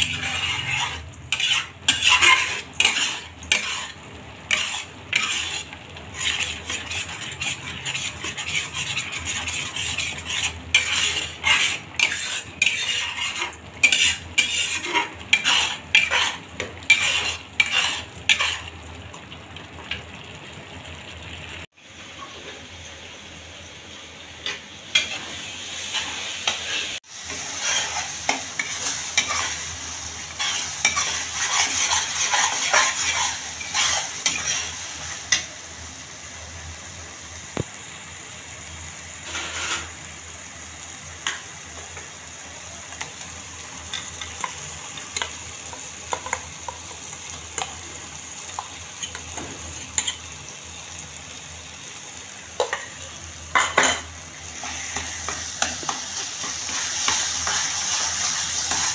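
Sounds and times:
spatula scraping a pan: 0.0 - 18.8, 24.4 - 35.5, 39.2 - 40.1, 43.0 - 50.4, 52.6 - 58.9
paste sizzling in a pan: 0.0 - 58.9.

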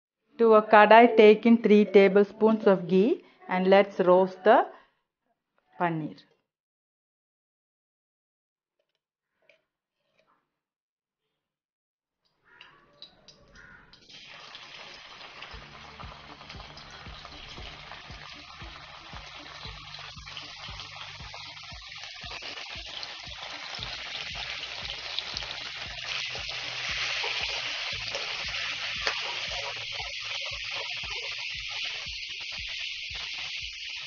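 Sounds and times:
spattering crackles: 13.0 - 34.0
cheese frying in hot fat: 13.3 - 34.0.

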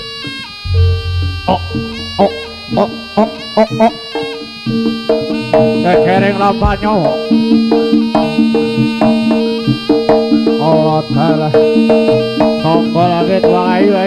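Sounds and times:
held low tones: 0.6 - 3.6
wavering high melody: 0.6 - 3.6
gamelan drums and gong-chimes: 0.7 - 3.4.

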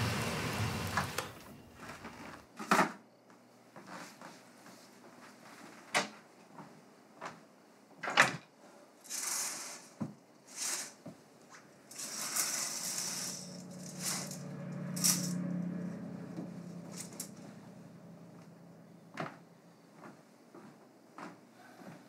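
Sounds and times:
curtain rings rattling on rod: 11.9 - 15.4, 16.9 - 17.4
low hum: 12.9 - 19.9.

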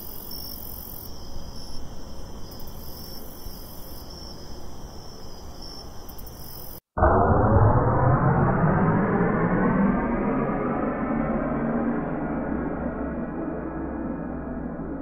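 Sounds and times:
crickets chirping: 0.0 - 6.8
rising pitch swelling sound: 7.0 - 15.0.

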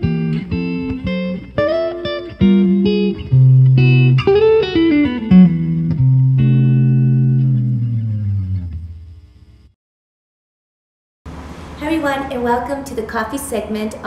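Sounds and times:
plucked guitar: 0.0 - 9.0
bass: 0.0 - 9.7.

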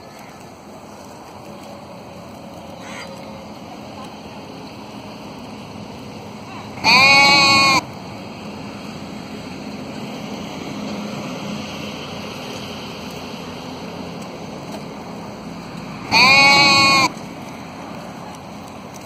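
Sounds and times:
sheep bleating: 6.7 - 7.9, 16.1 - 17.2.

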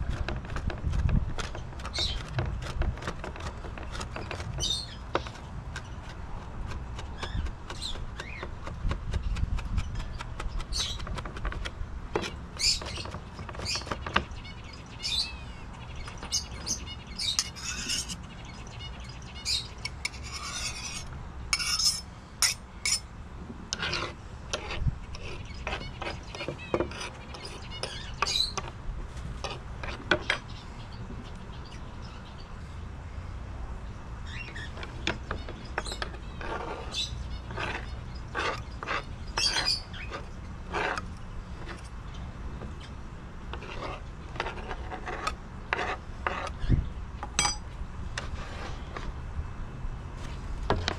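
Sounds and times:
birds chirping: 1.4 - 21.0, 24.6 - 28.8, 29.8 - 43.1.

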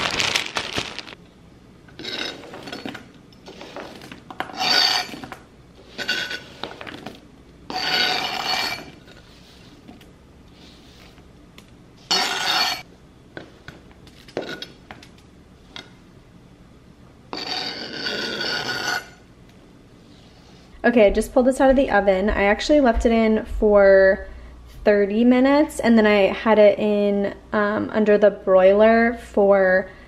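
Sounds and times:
knife scraping cutting board: 2.0 - 7.0, 7.7 - 9.9, 12.1 - 12.8, 17.3 - 19.2.

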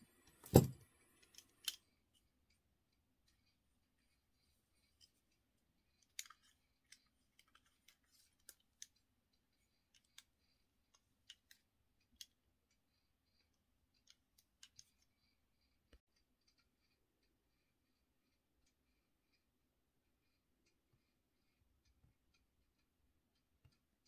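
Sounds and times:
small lens clicks and ticks: 1.0 - 19.5.

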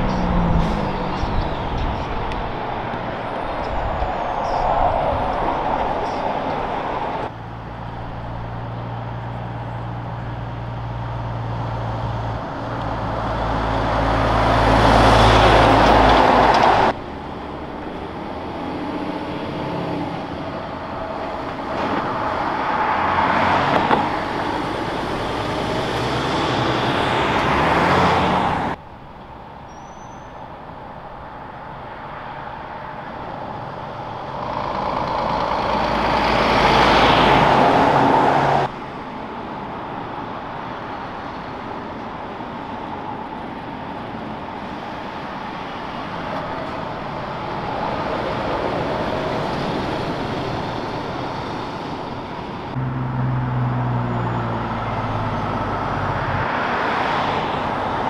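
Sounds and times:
low engine drone: 0.0 - 22.5
heavy trucks driving past: 0.0 - 58.0.

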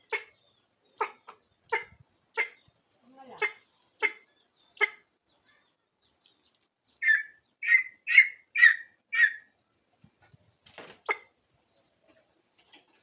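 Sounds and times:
junglefowl calling: 1.0 - 2.7, 7.0 - 9.5.

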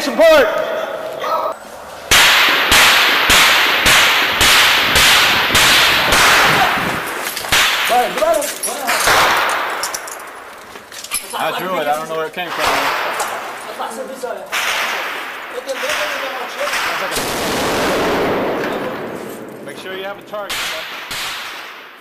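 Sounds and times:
gunshots with long echo: 1.9 - 10.6, 12.5 - 13.8, 14.5 - 22.0.

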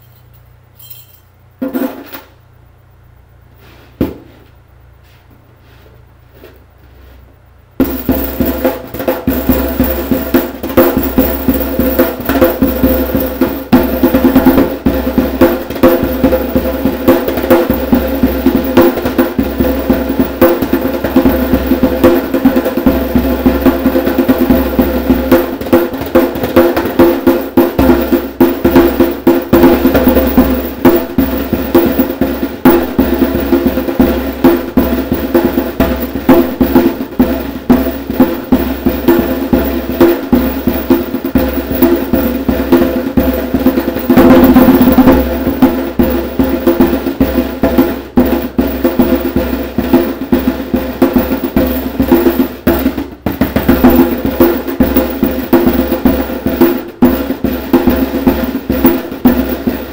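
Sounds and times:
hand drumming on djembe: 7.8 - 59.9
metal tags rattling on drumhead: 24.4 - 59.9.

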